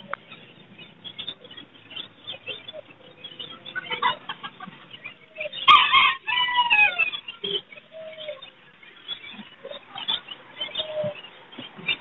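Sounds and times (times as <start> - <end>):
faint bird sounds: 0.0 - 12.0
rooster crowing: 5.5 - 7.2.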